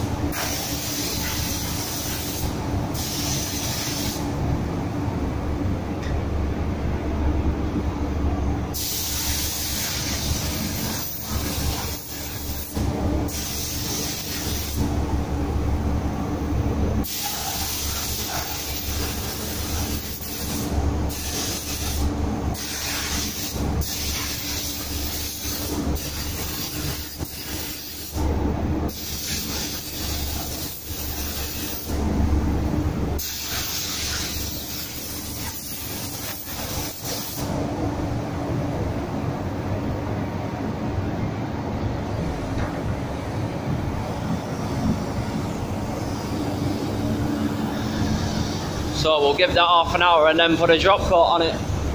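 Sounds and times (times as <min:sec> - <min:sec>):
spray gun hissing: 0:00.3 - 0:04.2, 0:08.8 - 0:12.7, 0:13.3 - 0:14.8, 0:17.0 - 0:28.1, 0:28.9 - 0:31.9, 0:33.2 - 0:37.5.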